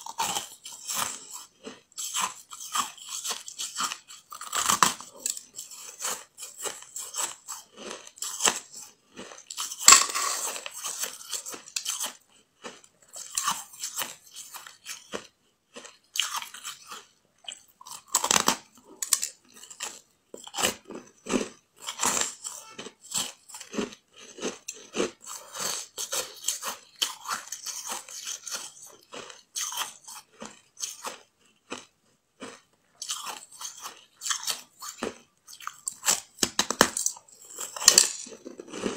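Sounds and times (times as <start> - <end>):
ice crunching while chewed: 0.0 - 38.9.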